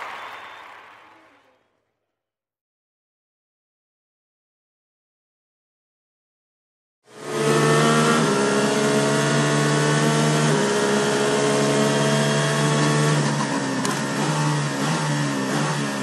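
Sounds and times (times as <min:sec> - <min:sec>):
race car engine running hard: 0:07.1 - 0:16.0.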